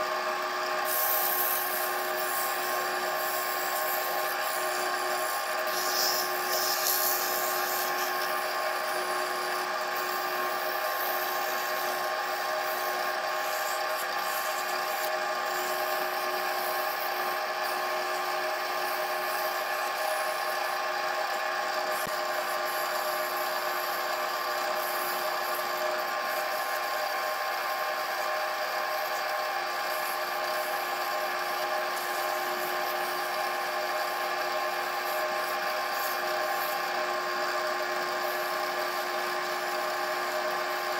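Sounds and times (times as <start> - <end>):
lathe motor running: 0.0 - 40.9
pad rubbing spinning wood: 0.8 - 17.8.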